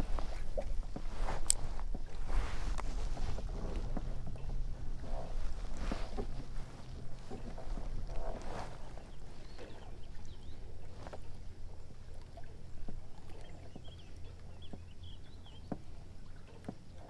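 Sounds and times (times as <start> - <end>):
wind on microphone: 0.0 - 11.0
waves lapping against hull: 0.0 - 17.0.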